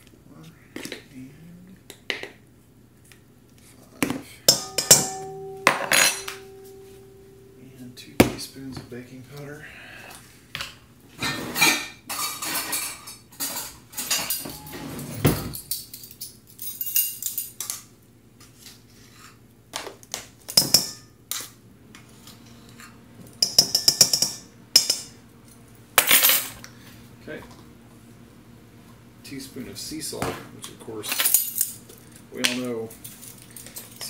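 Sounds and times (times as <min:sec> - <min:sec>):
metal spoons clinking: 0:04.5 - 0:07.7
ringing metal taps: 0:04.5 - 0:08.4.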